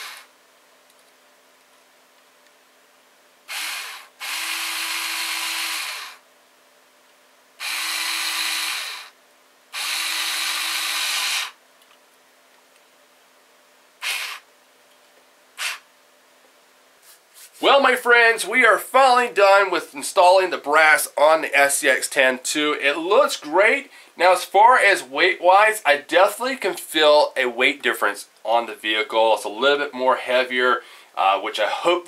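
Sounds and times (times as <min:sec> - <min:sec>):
electric drill driving screws: 0:00.0 - 0:00.3, 0:03.5 - 0:06.2, 0:07.6 - 0:11.6, 0:14.0 - 0:14.5, 0:15.6 - 0:15.8.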